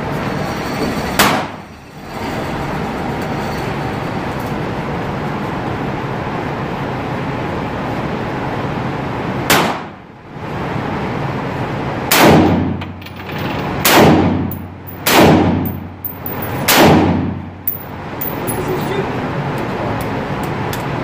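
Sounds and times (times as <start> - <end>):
steady background rush: 0.0 - 21.0
handgun shots echoing: 13.8 - 15.9, 16.6 - 17.8.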